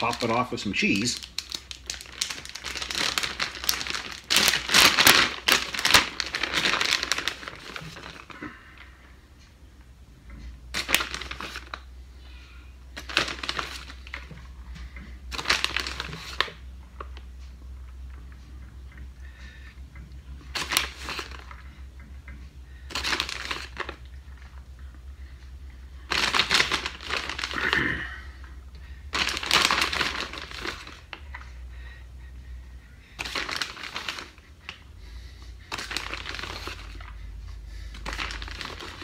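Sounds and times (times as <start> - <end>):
plastic bag crinkling: 0.0 - 8.9, 10.7 - 11.9, 12.9 - 14.4, 15.3 - 17.2, 20.4 - 21.7, 22.8 - 24.6, 26.0 - 28.0, 29.1 - 31.5, 33.2 - 34.8, 35.7 - 37.2, 37.8 - 39.0.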